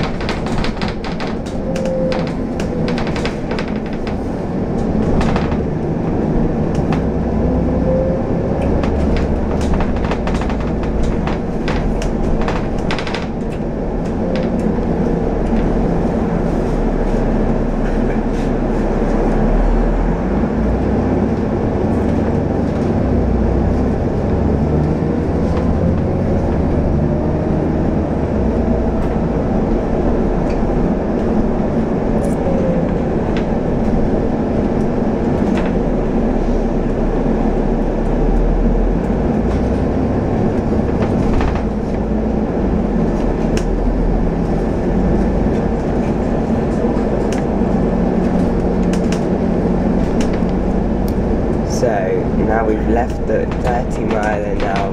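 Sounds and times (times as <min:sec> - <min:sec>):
body rattles: 0:00.0 - 0:07.3, 0:08.7 - 0:17.3, 0:39.4 - 0:54.9
bus engine and road rumble: 0:00.0 - 0:54.9.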